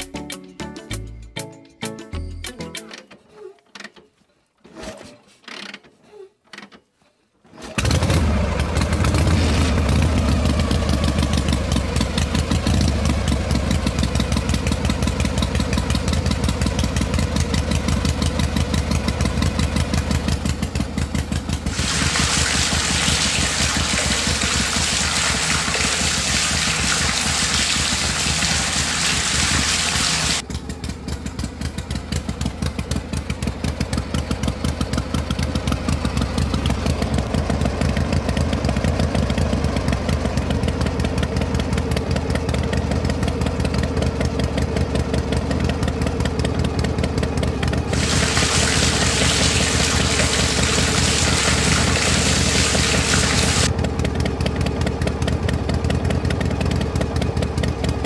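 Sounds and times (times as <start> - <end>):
small engine puttering: 7.5 - 58.0
loud hissing noise: 47.9 - 53.7.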